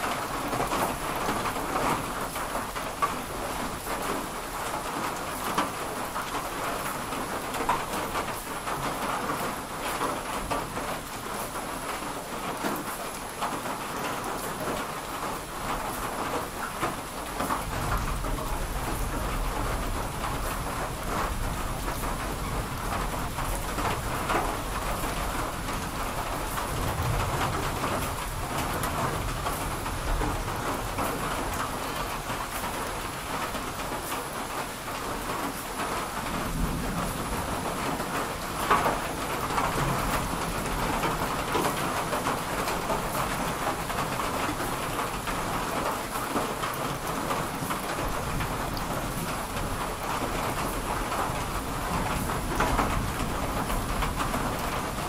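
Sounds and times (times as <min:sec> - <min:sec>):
steady rain: 0:00.0 - 0:55.0
thunder rumbling: 0:16.8 - 0:32.8, 0:35.9 - 0:44.3.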